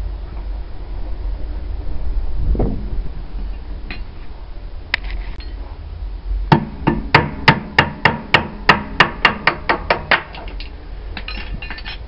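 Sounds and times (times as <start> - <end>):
hammer blows on metal: 6.5 - 10.4.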